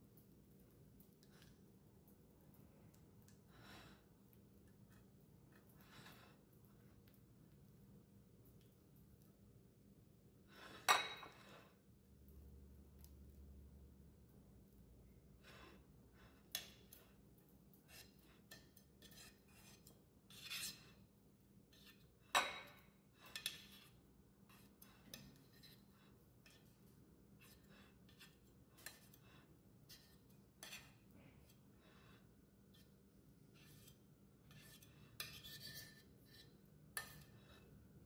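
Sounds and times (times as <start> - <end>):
metal spreader scraping a plate: 17.9 - 21.0, 33.5 - 37.7.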